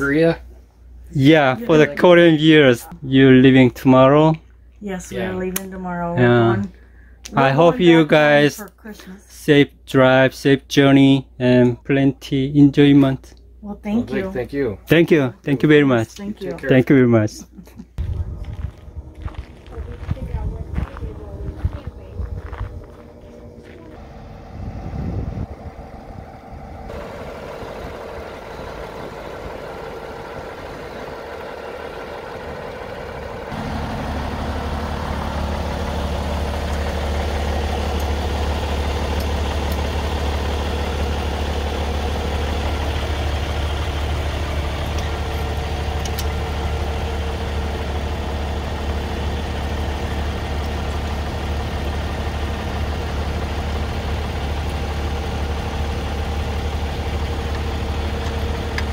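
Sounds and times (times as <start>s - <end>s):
diesel engine idling: 0.0s - 58.9s.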